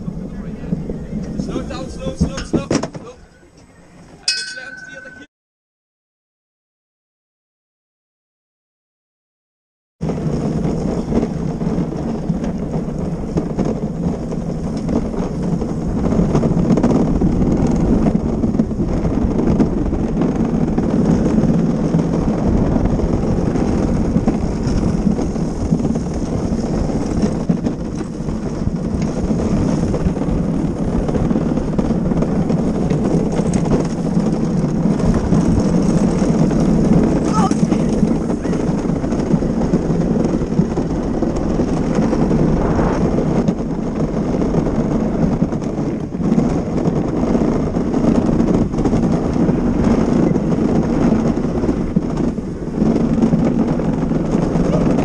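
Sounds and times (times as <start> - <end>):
cart wheels rumbling on asphalt: 0.0 - 5.2, 10.0 - 55.0.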